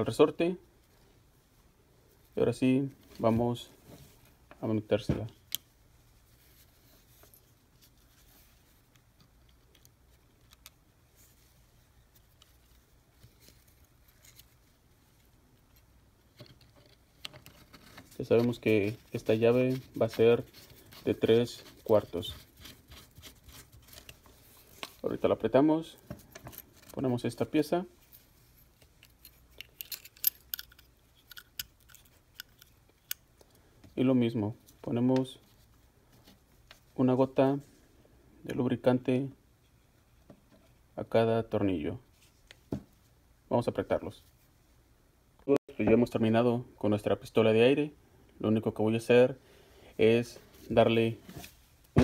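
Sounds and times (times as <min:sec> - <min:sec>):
small metal parts clicking: 0:28.7 - 0:33.2.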